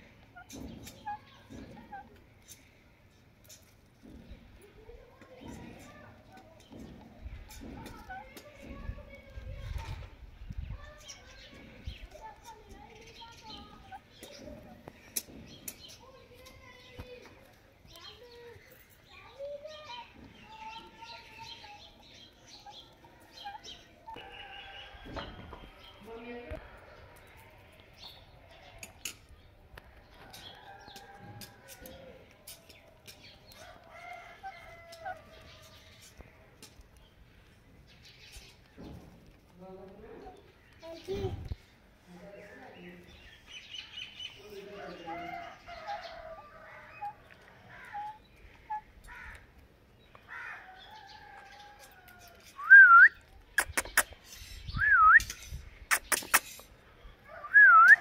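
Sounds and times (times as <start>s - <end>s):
rooster crowing: 24.2s - 25.4s
parrot soft chatter: 53.5s - 54.6s, 55.3s - 56.7s
sharp clicks: 53.6s - 54.2s, 55.1s - 56.7s.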